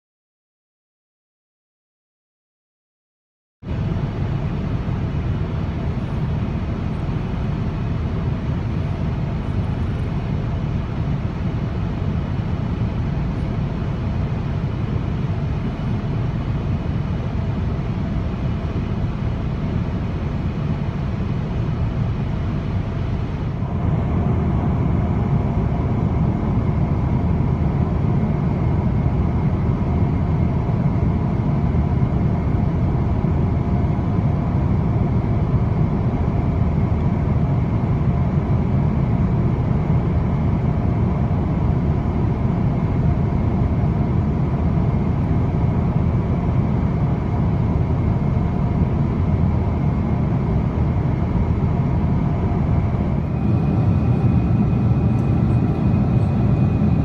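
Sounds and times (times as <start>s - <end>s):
airplane cabin noise: 3.7s - 57.0s
faint steady tone: 45.2s - 57.0s.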